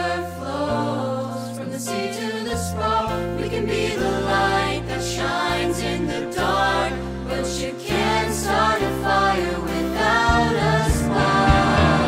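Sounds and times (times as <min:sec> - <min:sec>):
young voices singing: 0:00.0 - 0:12.0
instrumental accompaniment: 0:03.5 - 0:12.0.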